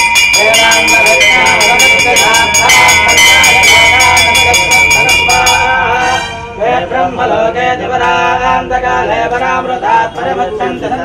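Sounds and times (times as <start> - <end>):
temple bell ringing rapidly: 0.0 - 7.1
men chanting: 0.0 - 11.0.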